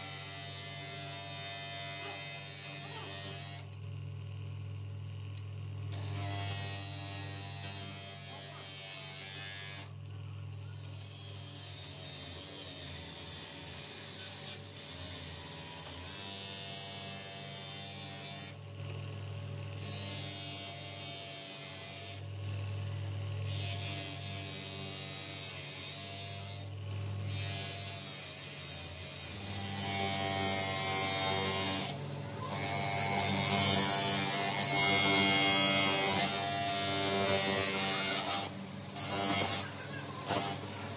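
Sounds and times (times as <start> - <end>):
electric motor humming: 23.5 - 40.9.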